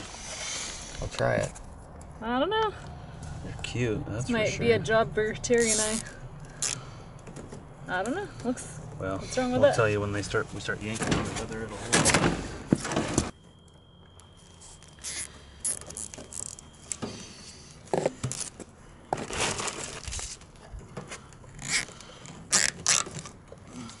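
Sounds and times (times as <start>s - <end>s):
zip ties ratcheting: 21.6s - 21.9s, 22.5s - 23.3s.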